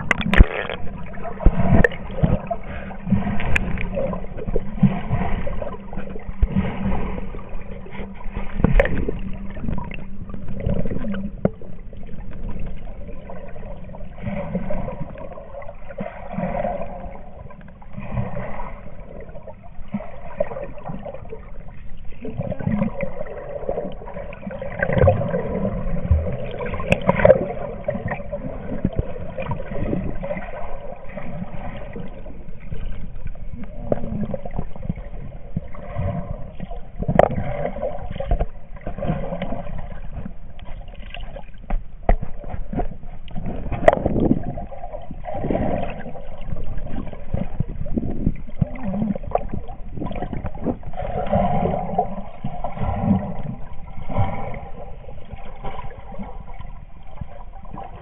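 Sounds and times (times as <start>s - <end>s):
water sloshing and gurgling: 0.0s - 58.0s.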